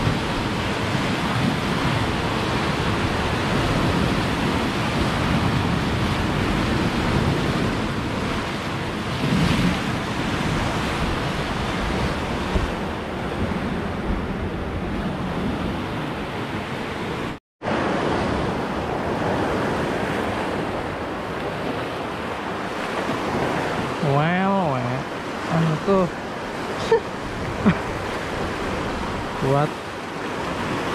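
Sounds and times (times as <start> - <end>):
surf breaking against rocks: 17.7 - 30.9.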